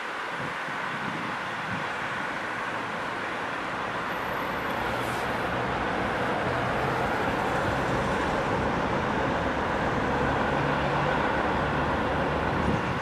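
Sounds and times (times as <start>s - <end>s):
train rumble: 2.6s - 13.0s.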